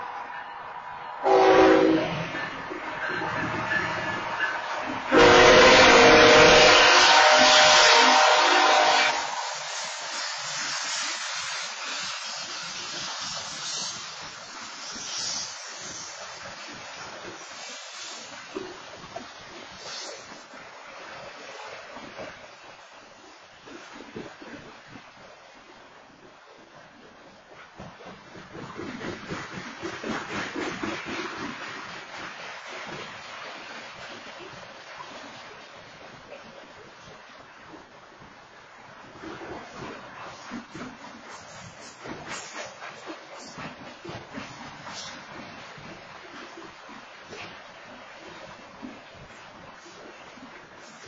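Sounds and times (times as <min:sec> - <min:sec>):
train wheels hissing on rail: 0:00.0 - 0:25.2, 0:26.5 - 0:51.0
low train rumble: 0:00.0 - 0:51.0.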